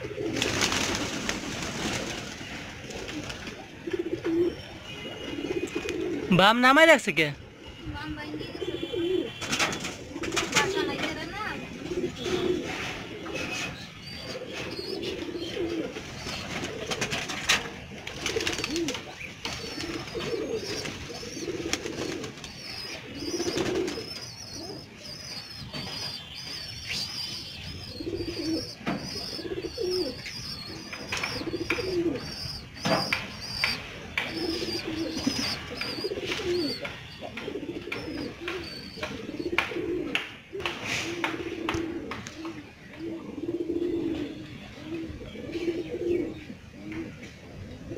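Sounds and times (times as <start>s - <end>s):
pigeons cooing: 0.0s - 6.3s, 7.6s - 47.9s.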